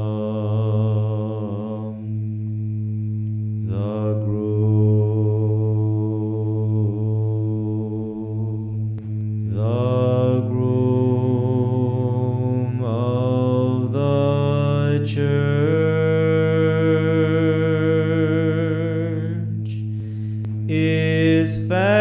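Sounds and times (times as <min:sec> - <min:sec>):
low drone: 0:00.0 - 0:22.0
man chanting: 0:03.7 - 0:08.7, 0:09.4 - 0:19.8, 0:20.6 - 0:22.0.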